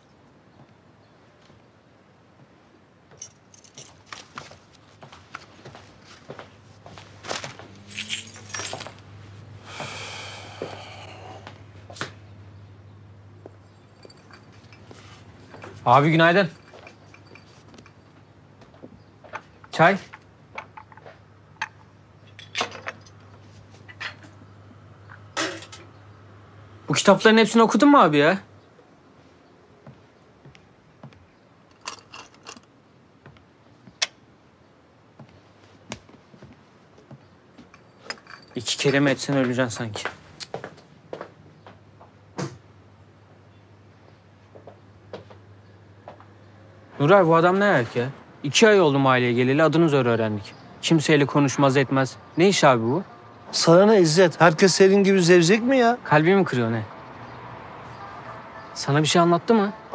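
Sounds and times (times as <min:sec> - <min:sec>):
small objects clinking and knocking: 0:07.3 - 0:09.0, 0:13.4 - 0:18.2, 0:19.3 - 0:24.4, 0:31.7 - 0:32.7, 0:37.5 - 0:40.5
glassy jingle: 0:07.9 - 0:09.0, 0:13.4 - 0:18.2, 0:37.6 - 0:40.4.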